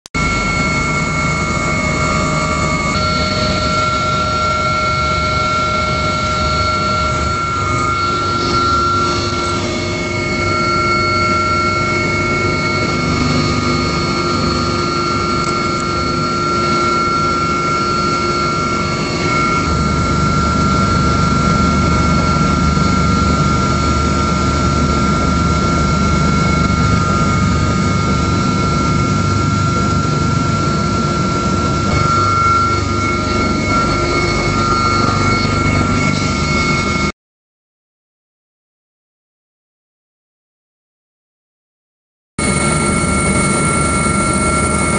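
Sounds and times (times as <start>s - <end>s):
turbine whine: 0.1s - 37.2s, 42.4s - 44.9s
engine and rotor rumble: 0.2s - 37.1s, 42.4s - 44.9s.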